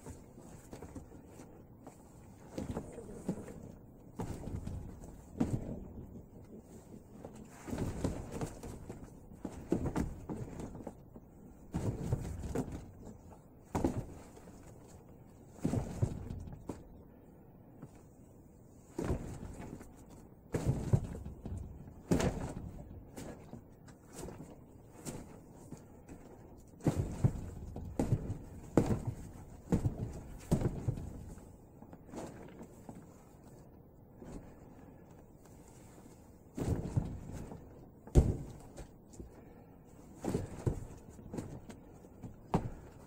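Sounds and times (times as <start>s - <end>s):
hands striking wooden dummy: 36.6s - 38.9s.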